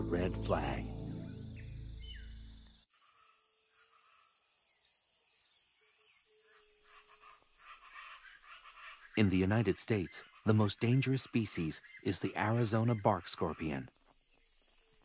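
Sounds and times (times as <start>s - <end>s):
music: 0.0s - 2.8s.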